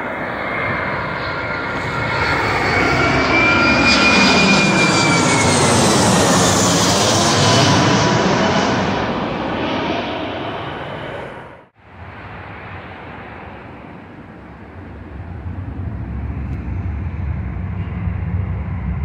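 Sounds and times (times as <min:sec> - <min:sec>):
aircraft engine noise: 0:00.0 - 0:19.0
low rumble: 0:05.8 - 0:19.0.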